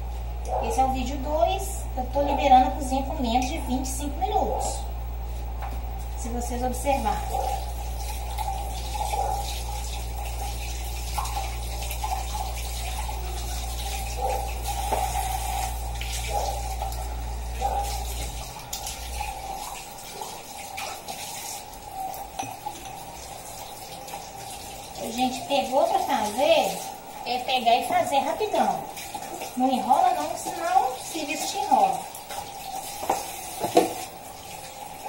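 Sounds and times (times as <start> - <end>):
low hum: 0.0 - 20.9
kitchen tap running: 5.6 - 35.0
glasses clinking: 22.3 - 23.1.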